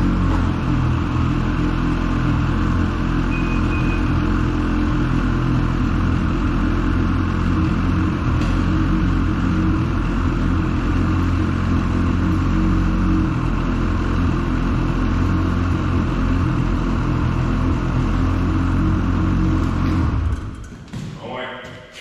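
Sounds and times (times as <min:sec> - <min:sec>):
snowmobile engine idling: 0:00.0 - 0:20.5.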